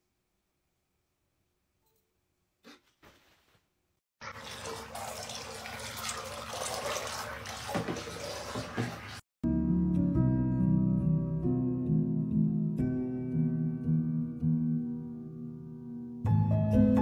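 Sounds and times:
water splashing in a bathtub: 0:04.2 - 0:09.3.

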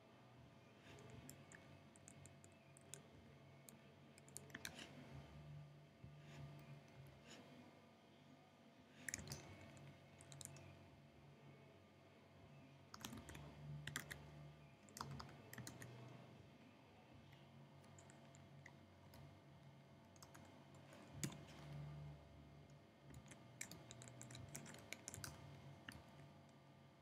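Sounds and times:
computer keyboard keystrokes: 0:09.0 - 0:10.7, 0:13.0 - 0:14.2, 0:14.9 - 0:16.1, 0:20.2 - 0:21.8, 0:23.1 - 0:26.1.

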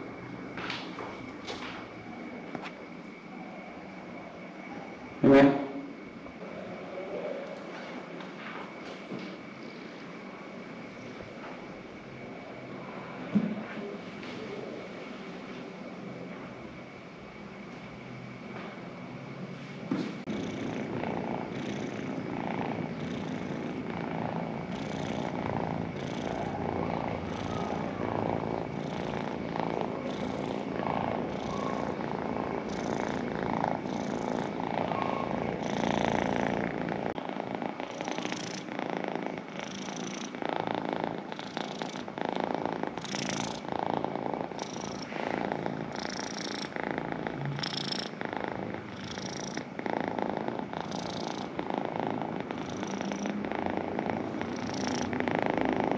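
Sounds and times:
cat purring: 0:20.2 - 0:55.9.

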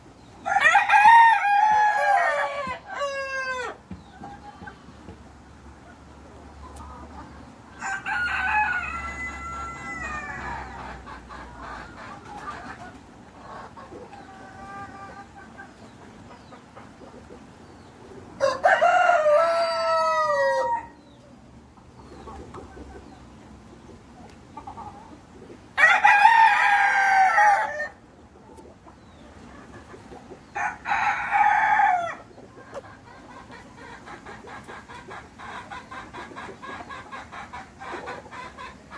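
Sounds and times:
rooster crowing: 0:00.4 - 0:03.8, 0:07.8 - 0:10.7, 0:18.4 - 0:21.0, 0:25.8 - 0:28.0, 0:30.6 - 0:32.3.

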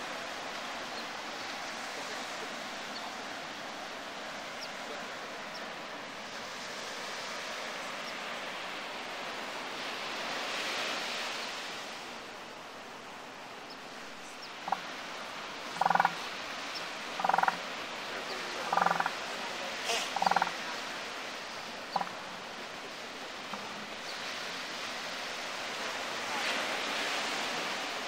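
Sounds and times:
surf hissing: 0:00.0 - 0:28.0
elephant seal pulsing calls: 0:18.7 - 0:19.2, 0:19.8 - 0:20.7, 0:21.8 - 0:22.3.

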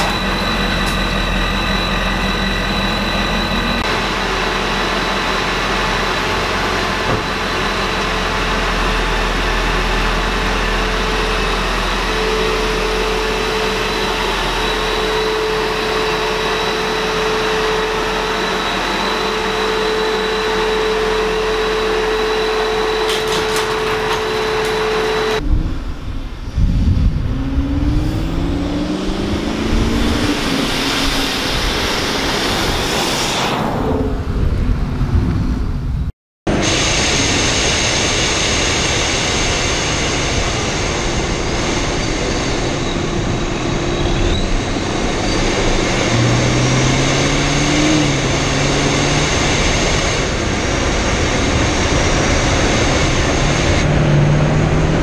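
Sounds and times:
car engine accelerating: 0:24.2 - 0:33.0, 0:43.2 - 0:55.0
wind rush: 0:25.2 - 0:55.0.

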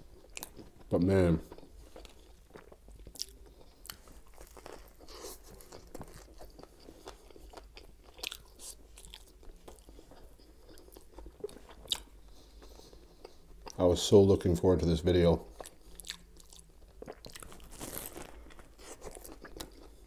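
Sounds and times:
crunchy sandwich chewing: 0:01.5 - 0:13.8, 0:15.5 - 0:20.0.

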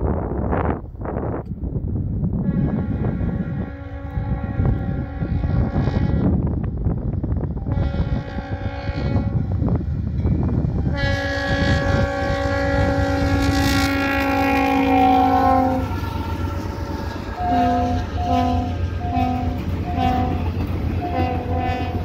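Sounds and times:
train rumble: 0:00.0 - 0:22.0
locomotive air horn: 0:02.4 - 0:06.4, 0:07.6 - 0:09.6, 0:10.8 - 0:22.0.

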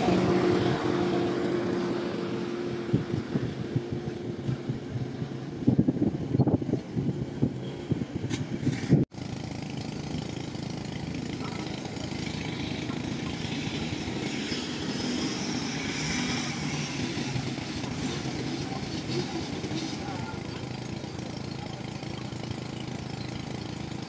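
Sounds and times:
diesel engine running: 0:00.0 - 0:24.0
wind buffeting microphone: 0:02.6 - 0:09.1.

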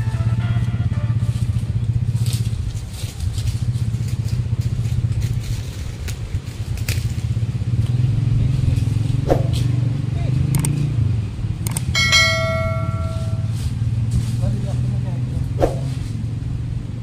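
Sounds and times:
small engine idling: 0:00.0 - 0:09.2, 0:11.4 - 0:15.0
sharp clicks: 0:10.5 - 0:10.8, 0:11.6 - 0:11.9.

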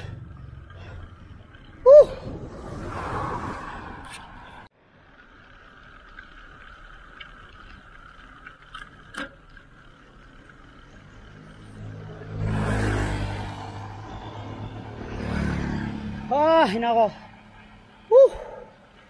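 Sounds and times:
vehicle engine passing by: 0:00.0 - 0:04.7, 0:10.9 - 0:18.7
faint road noise: 0:00.0 - 0:19.0.

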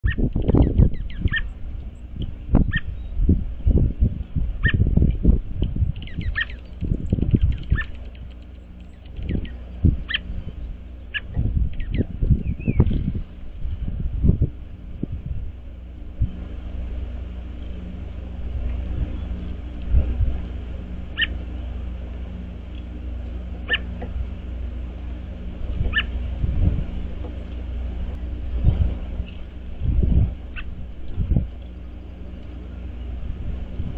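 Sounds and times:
high yelping calls: 0:00.0 - 0:01.6, 0:02.6 - 0:03.0, 0:04.6 - 0:04.9, 0:06.0 - 0:08.2, 0:09.0 - 0:10.4, 0:11.1 - 0:12.8, 0:21.1 - 0:21.4, 0:23.6 - 0:24.0, 0:25.8 - 0:26.2, 0:30.5 - 0:30.8
birds chip calls: 0:00.0 - 0:03.2, 0:04.6 - 0:04.9, 0:05.9 - 0:13.4, 0:17.5 - 0:29.7, 0:30.4 - 0:33.2
distant hum: 0:00.0 - 0:33.9
low rumbling and thumps: 0:00.1 - 0:33.9.

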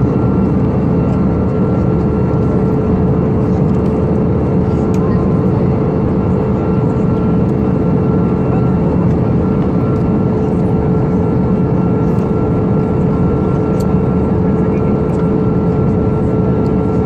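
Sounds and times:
aircraft cabin engine rush: 0:00.0 - 0:17.0
constant hum: 0:00.0 - 0:17.0.

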